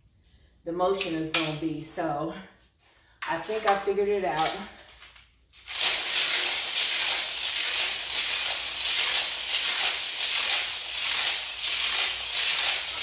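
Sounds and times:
hula hoop rattling whir: 0:05.4 - 0:13.0.

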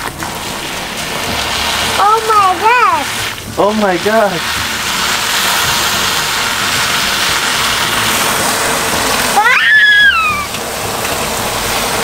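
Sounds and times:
hose water running into tub: 0:00.0 - 0:12.0
child squealing: 0:09.4 - 0:10.6.

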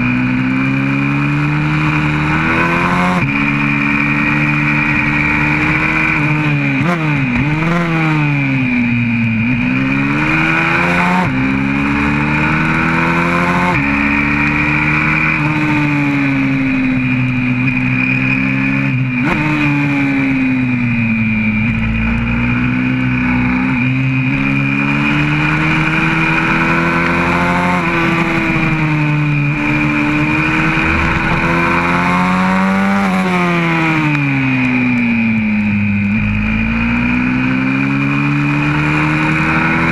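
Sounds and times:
motorbike engine shifting gears: 0:00.0 - 0:39.9.

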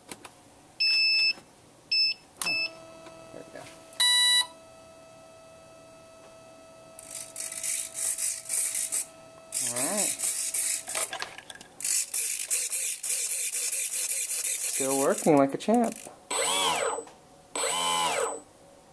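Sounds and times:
small electric motor whirring: 0:07.0 - 0:11.1, 0:11.8 - 0:18.4.

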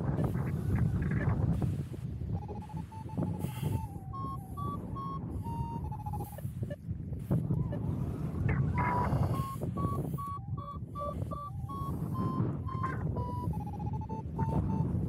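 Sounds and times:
wind on microphone: 0:00.0 - 0:15.0
variometer beeping: 0:02.3 - 0:06.8, 0:07.5 - 0:15.0.

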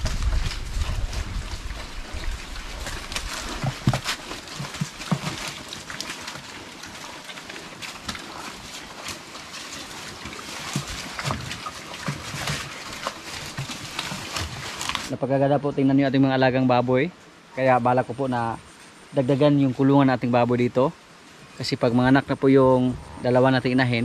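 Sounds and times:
piglets crunching leaves: 0:00.0 - 0:15.2.

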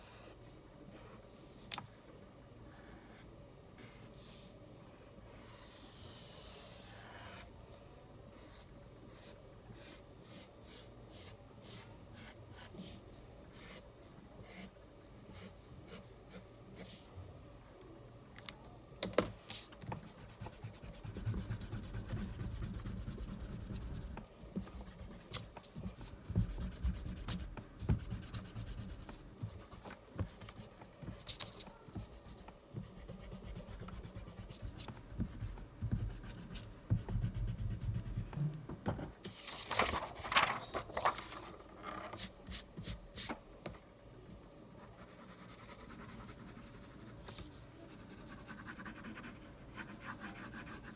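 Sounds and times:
marker drawing on paper: 0:05.3 - 0:13.8, 0:14.4 - 0:14.7, 0:19.5 - 0:38.2, 0:44.8 - 0:50.9
hands rubbing paper: 0:39.3 - 0:42.6.

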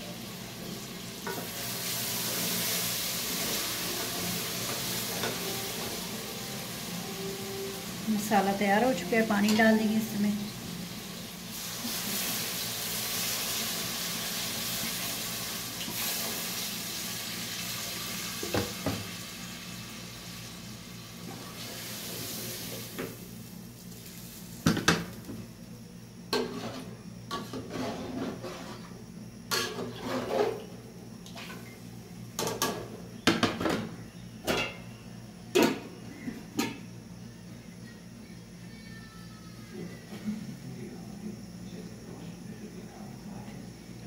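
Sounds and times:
water hissing in hot pot: 0:00.0 - 0:09.4, 0:10.0 - 0:24.7.

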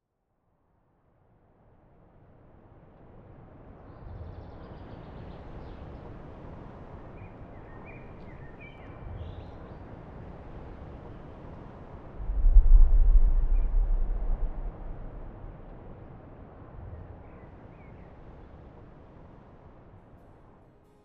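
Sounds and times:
low rumble and hiss: 0:12.1 - 0:16.0.

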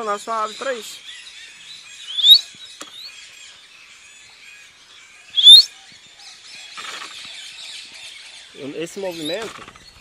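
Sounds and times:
faint bird chirping: 0:00.0 - 0:10.0
sharp rising whistle: 0:02.1 - 0:02.4, 0:05.4 - 0:05.7.

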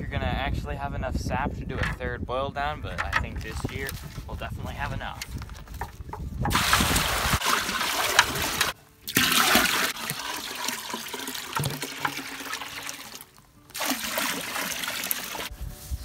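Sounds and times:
liquid pouring into metal pot: 0:06.5 - 0:15.5.

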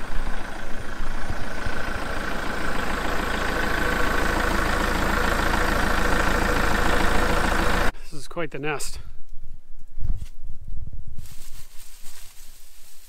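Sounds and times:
tractor diesel engine idling: 0:00.0 - 0:08.0.

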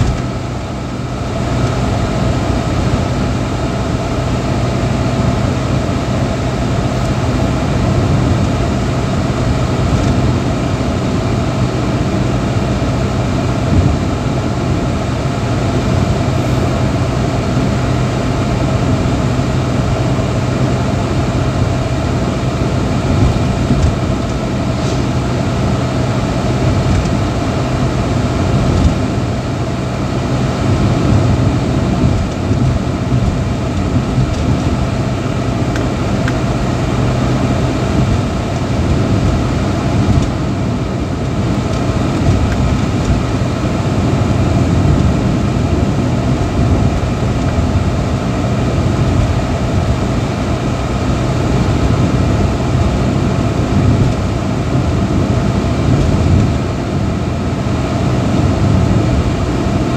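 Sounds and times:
car engine hum: 0:00.0 - 0:59.9
tyre and road noise: 0:00.0 - 0:59.9.

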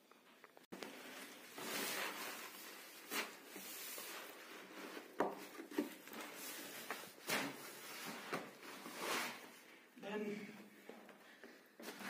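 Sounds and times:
plastic sack rustling: 0:00.8 - 0:09.6.

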